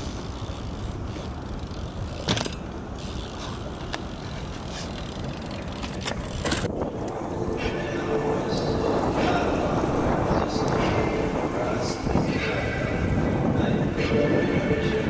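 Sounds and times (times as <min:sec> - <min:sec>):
bike tyres rumbling on concrete: 0:00.0 - 0:15.0
wind on microphone: 0:03.6 - 0:15.0.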